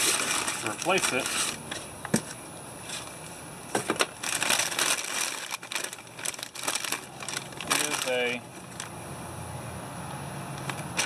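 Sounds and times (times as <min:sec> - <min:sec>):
packaging crinkling: 0:00.0 - 0:01.6, 0:04.0 - 0:08.9.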